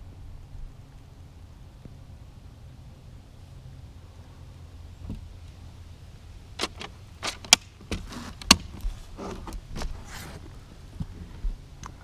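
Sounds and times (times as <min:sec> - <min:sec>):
brushing on wood: 0:07.9 - 0:10.5.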